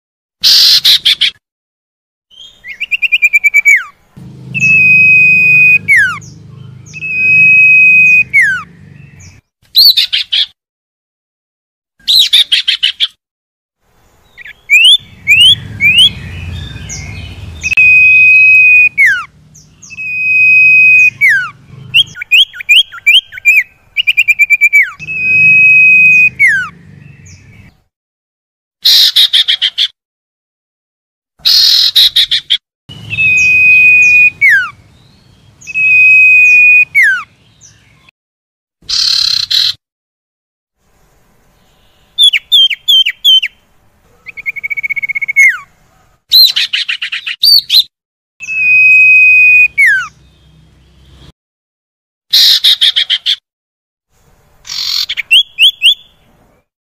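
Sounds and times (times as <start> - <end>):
bird harsh chattering: 0.4 - 1.4, 14.4 - 27.7, 28.8 - 29.9, 31.4 - 34.8, 38.8 - 39.8, 52.4 - 53.4, 54.7 - 56.1
bird rising notes: 2.6 - 9.9, 14.4 - 27.7, 32.9 - 37.3.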